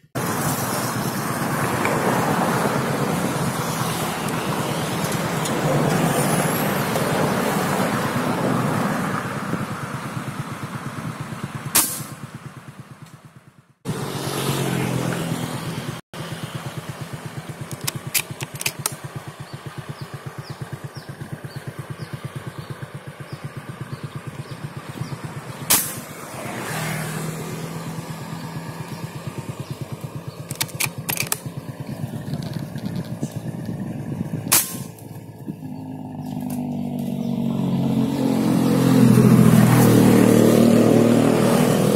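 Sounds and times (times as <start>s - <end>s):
sharp cracks: 11.8s - 12.2s, 17.6s - 19.1s, 25.6s - 26.2s, 30.4s - 31.6s, 34.5s - 35.1s
small engine running: 13.3s - 41.9s.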